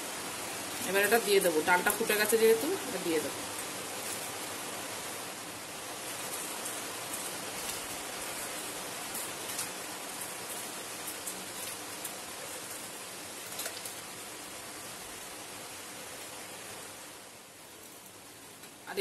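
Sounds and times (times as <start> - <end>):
pot bubbling and hissing: 0.0 - 19.0.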